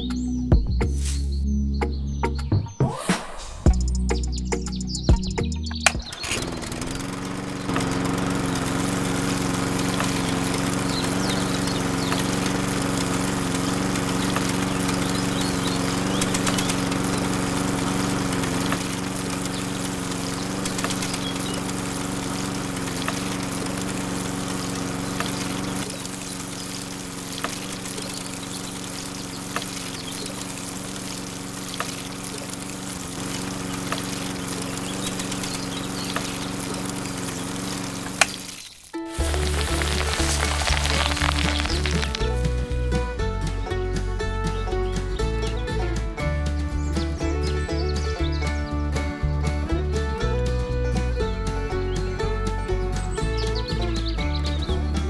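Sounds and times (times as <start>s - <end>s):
small motor humming: 5.8s - 43.0s.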